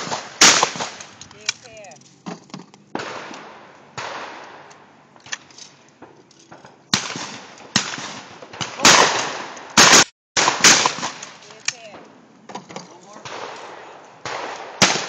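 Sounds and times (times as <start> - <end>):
shotgun shots with echo: 0.0 - 1.2, 3.0 - 4.7, 6.9 - 12.0, 13.2 - 15.0.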